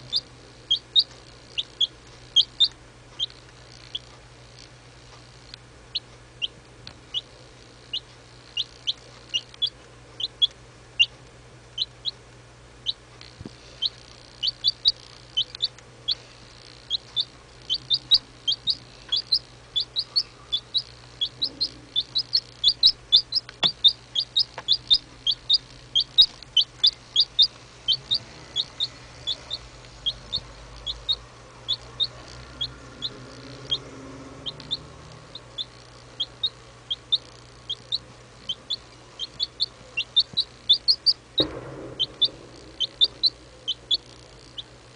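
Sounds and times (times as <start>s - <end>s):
chick peeping: 0.0s - 12.2s, 12.8s - 44.9s.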